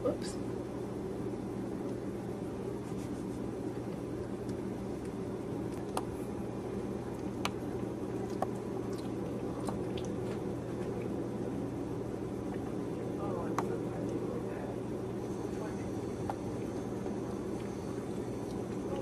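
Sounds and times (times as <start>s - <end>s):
low background hum: 0.0s - 19.0s
puppies suckling: 3.7s - 11.2s.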